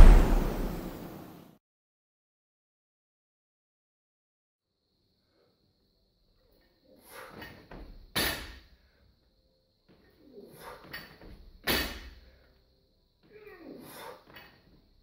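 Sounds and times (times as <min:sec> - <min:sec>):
barbell bang: 0:00.0 - 0:01.2.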